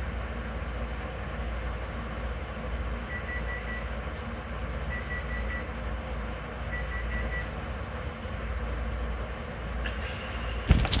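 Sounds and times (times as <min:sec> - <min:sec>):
steady low rumble: 0:00.0 - 0:11.0
electronic alarm beeping: 0:04.9 - 0:05.7, 0:06.7 - 0:07.5.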